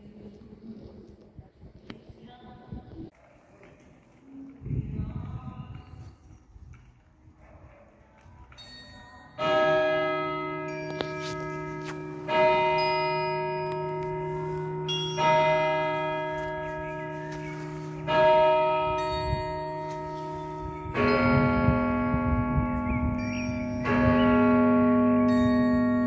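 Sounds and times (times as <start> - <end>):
church bell striking: 8.6 - 26.0
second bell striking: 10.3 - 26.0.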